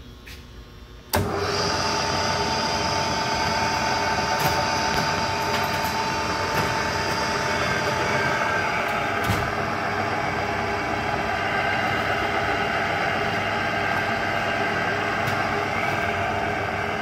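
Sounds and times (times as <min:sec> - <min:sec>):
drill press motor whining: 0:01.1 - 0:17.0.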